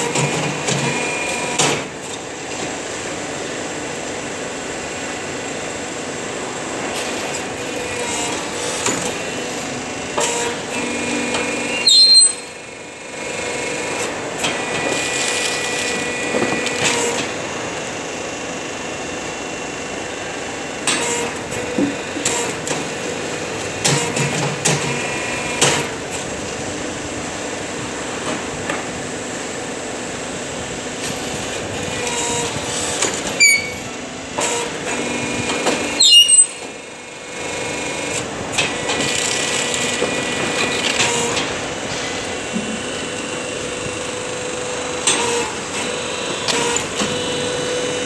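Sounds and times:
hydraulic power pack hum: 30.5s - 38.9s
metal clanks of press: 33.4s - 33.9s.

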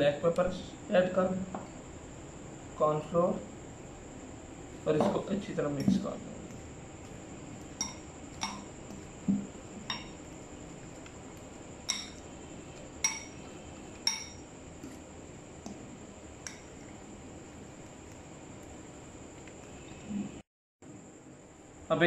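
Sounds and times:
fork clinking against glass bowl: 7.7s - 8.7s, 9.9s - 10.2s, 11.8s - 12.2s, 13.0s - 13.4s, 14.0s - 14.4s.

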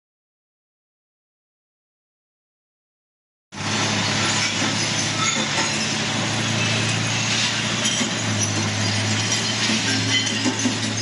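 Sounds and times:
glass crusher machine droning: 3.6s - 11.0s.

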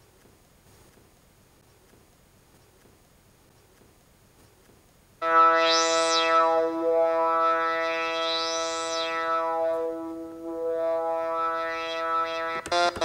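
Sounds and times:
synthesizer note with filter sweep: 5.2s - 13.0s.

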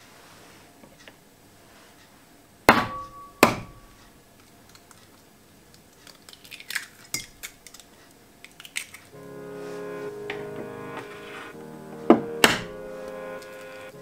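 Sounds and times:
sharp ringing knocks: 2.7s - 3.9s.

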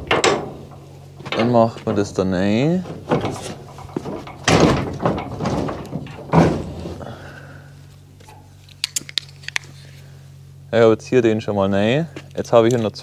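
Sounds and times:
metal knocks on trailer wall: 0.0s - 7.0s.

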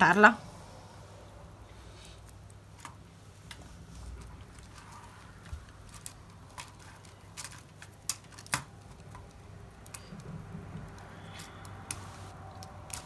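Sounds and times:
plastic parts clicking: 5.7s - 11.1s.

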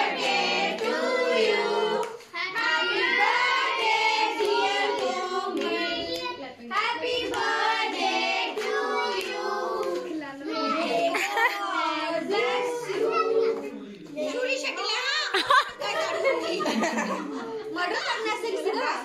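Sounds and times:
children singing in chorus: 0.0s - 6.3s, 6.9s - 13.8s.

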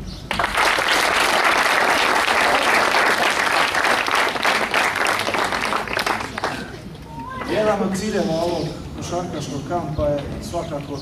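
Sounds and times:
crowd applauding: 0.3s - 6.8s.

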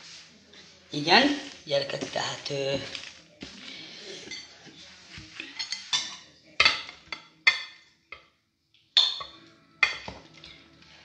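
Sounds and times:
cutlery clinking against plate: 4.1s - 4.8s, 5.4s - 8.3s, 9.0s - 10.5s.

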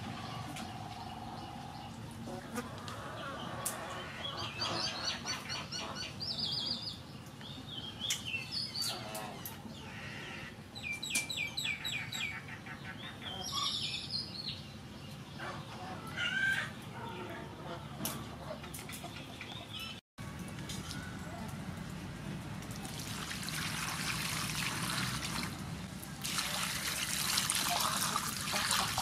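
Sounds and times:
small birds chirping: 0.2s - 10.2s.

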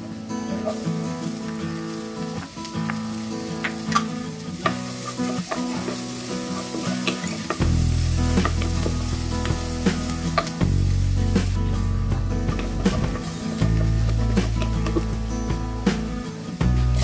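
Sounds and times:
onion sizzling in oil: 0.0s - 17.0s
spatula scraping and tapping pan: 2.4s - 10.6s, 12.1s - 16.1s.

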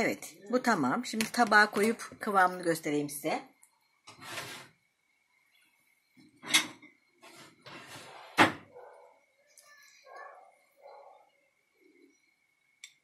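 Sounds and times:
kitchen rustles and knocks: 6.4s - 8.7s
cupboard door shutting: 7.7s - 8.7s.

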